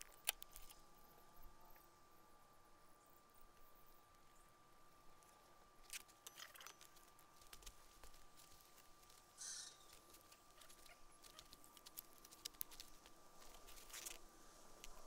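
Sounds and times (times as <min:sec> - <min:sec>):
rustle: 0:05.1 - 0:15.0
campfire crackling: 0:05.8 - 0:15.0.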